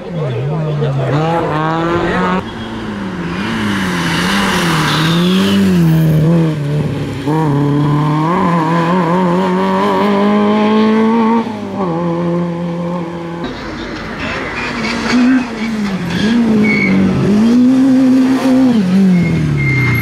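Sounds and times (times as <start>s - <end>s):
rally car engine at high revs: 0.0s - 13.5s, 14.6s - 20.0s.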